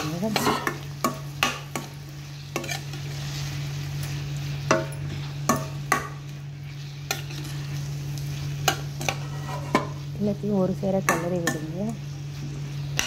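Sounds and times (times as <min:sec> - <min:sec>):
spoon scraping a pan: 0:00.0 - 0:10.1
vegetables sizzling in oil: 0:00.0 - 0:13.0.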